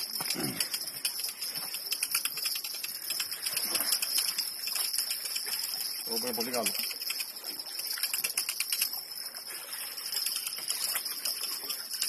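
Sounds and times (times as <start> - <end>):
fast irregular clicks: 0.0 - 9.3, 10.0 - 12.0.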